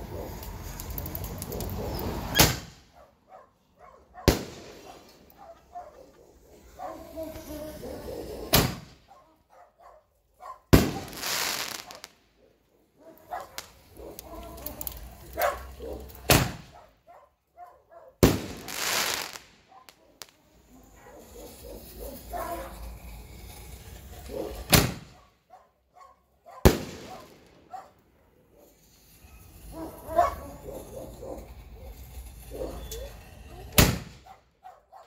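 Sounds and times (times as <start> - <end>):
shell bursting with sharp bang: 2.3 - 2.9, 4.2 - 5.2, 8.5 - 9.0, 10.7 - 12.0, 16.2 - 16.7, 18.2 - 19.6, 24.7 - 25.2, 26.6 - 27.6, 33.8 - 34.3.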